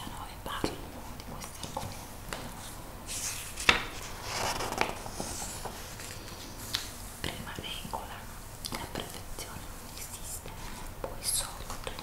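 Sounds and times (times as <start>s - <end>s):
magazine page rustling: 3.1s - 7.0s
sharp paper crackle: 3.3s - 6.9s.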